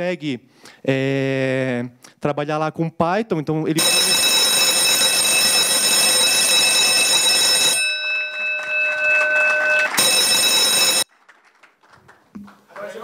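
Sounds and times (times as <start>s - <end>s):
loud electronic alarm ringing: 3.8s - 11.1s.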